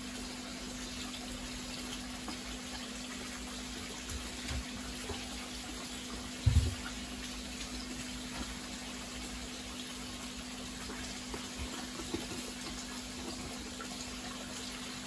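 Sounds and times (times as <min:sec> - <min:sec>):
dull low thump: 0:06.4 - 0:06.8.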